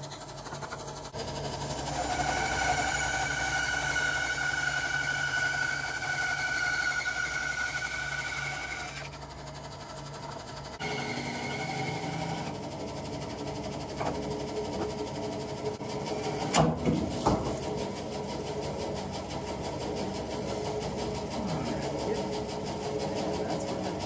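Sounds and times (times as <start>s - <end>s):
motor humming: 0.0s - 24.0s.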